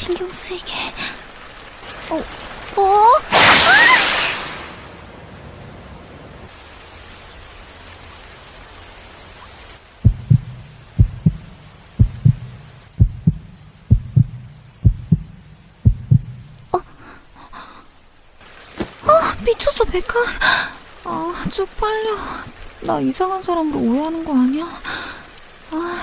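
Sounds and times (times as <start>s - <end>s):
rain falling: 0.0s - 26.0s
heartbeat thumps: 10.0s - 16.6s.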